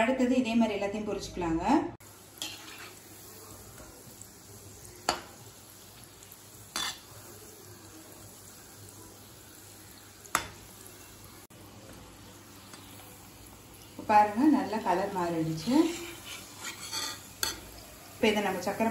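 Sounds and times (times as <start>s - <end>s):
balls deep-frying in oil: 0.7s - 18.9s
metal spoon clinking against pan: 6.7s - 7.0s, 16.2s - 17.7s.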